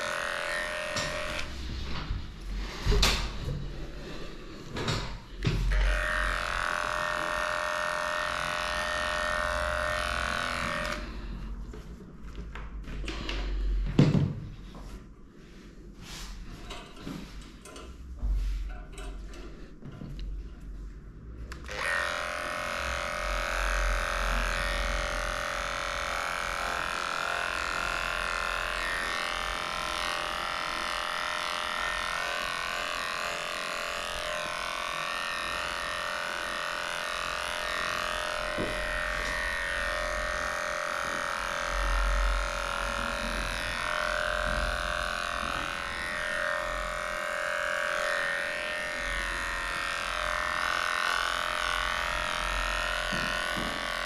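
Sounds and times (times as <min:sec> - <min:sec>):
electric clipper humming: 0:00.0 - 0:04.2, 0:05.0 - 0:11.5, 0:21.5 - 0:54.0.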